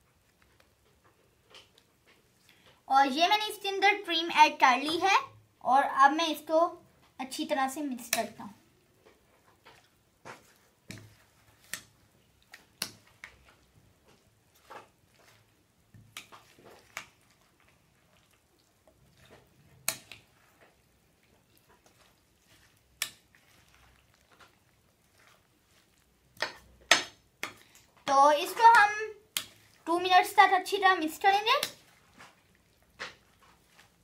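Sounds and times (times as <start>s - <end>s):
spoon stirring salad: 8.1s - 34.0s.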